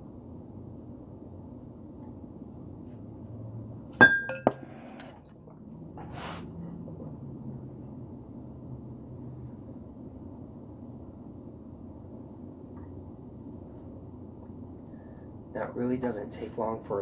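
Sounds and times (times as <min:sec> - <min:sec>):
steady low hum: 0:00.0 - 0:17.0
ceramic and glass clinking: 0:04.0 - 0:04.8.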